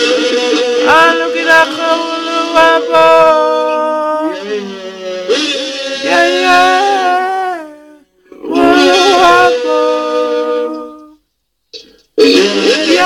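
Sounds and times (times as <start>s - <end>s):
women singing held notes: 8.5s - 11.2s.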